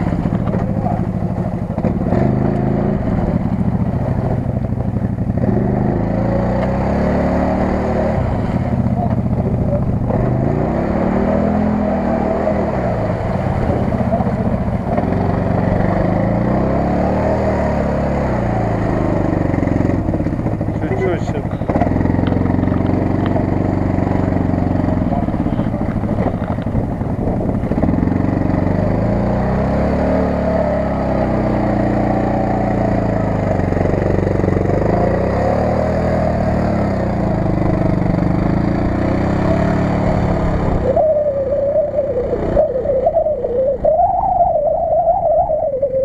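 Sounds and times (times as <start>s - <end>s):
engine revving: 0.0s - 46.0s
wavering whine: 28.8s - 46.0s.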